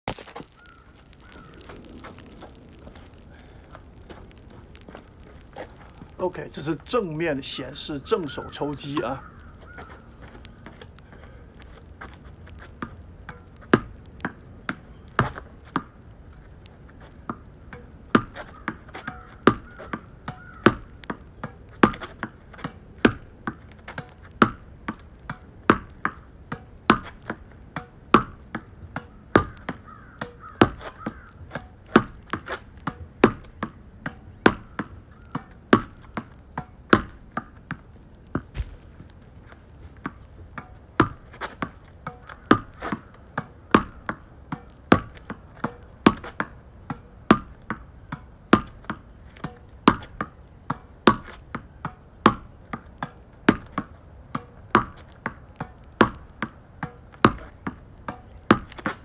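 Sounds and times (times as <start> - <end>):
tennis ball bouncing on asphalt: 0.1 - 59.0
racket hitting tennis ball: 38.4 - 39.2.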